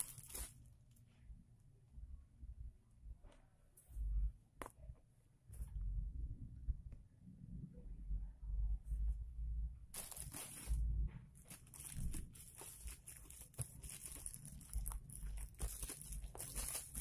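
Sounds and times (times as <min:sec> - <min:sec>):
plastic bag crinkling: 0:00.0 - 0:00.6, 0:10.0 - 0:17.0.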